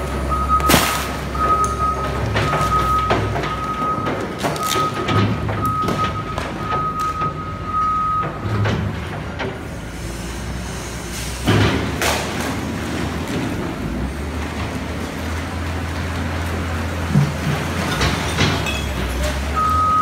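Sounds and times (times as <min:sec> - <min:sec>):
loader bucket clattering: 0:00.0 - 0:09.8, 0:11.4 - 0:20.0
diesel engine running: 0:00.0 - 0:20.0
reversing alarm beeping: 0:00.3 - 0:08.6, 0:19.6 - 0:20.0.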